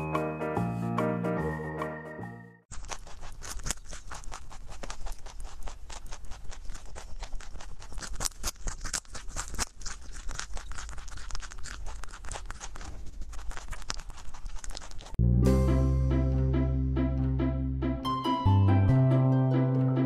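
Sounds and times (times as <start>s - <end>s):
rabbit crunching carrot: 2.7s - 15.2s.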